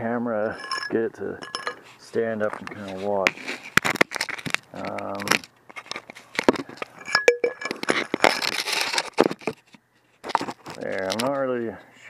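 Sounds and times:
ringing clink: 0.6 - 1.8, 7.0 - 7.7
camera scraping on gravel: 1.7 - 7.0, 7.7 - 11.4.

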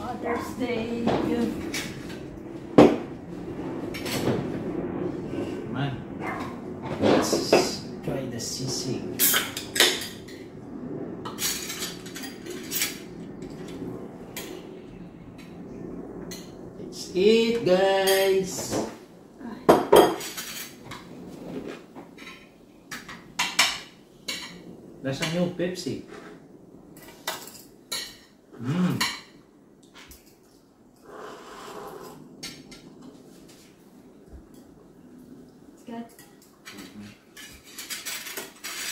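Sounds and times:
cutlery and plates clinking: 11.3 - 13.8, 19.8 - 21.1, 36.1 - 38.9
cutlery clinking on plates: 36.1 - 38.9.

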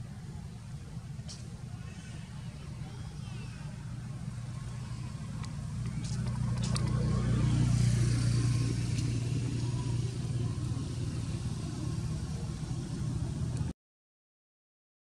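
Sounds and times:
vehicle engine running: 0.0 - 13.7.

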